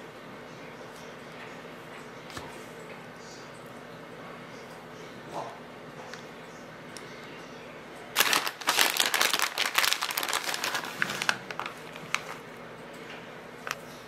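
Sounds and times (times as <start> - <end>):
plastic bag crinkling: 8.2 - 12.5.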